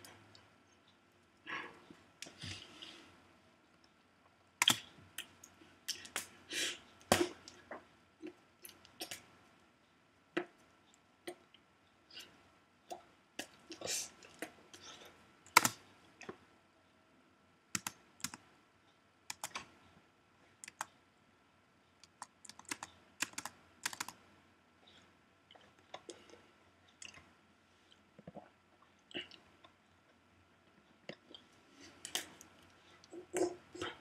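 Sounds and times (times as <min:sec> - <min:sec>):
irregular clicks and taps: 0:17.8 - 0:18.5, 0:19.3 - 0:19.8, 0:20.6 - 0:21.0, 0:21.9 - 0:24.2.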